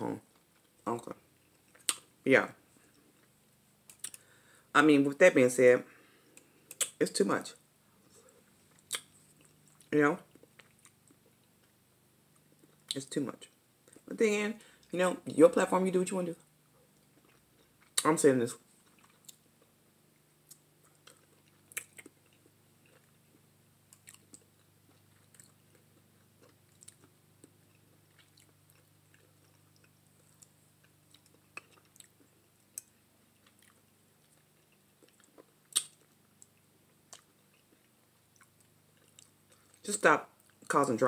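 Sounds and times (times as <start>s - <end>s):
faint low hum: 0.0s - 41.0s
chewing with mouth clicks: 8.2s - 11.8s, 16.9s - 18.0s, 18.8s - 39.8s.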